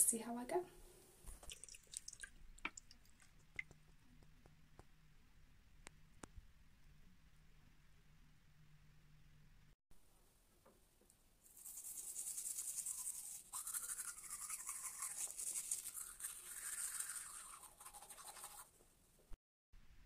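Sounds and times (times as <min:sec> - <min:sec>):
toothbrush scrubbing teeth: 0:01.3 - 0:03.8, 0:11.4 - 0:18.7.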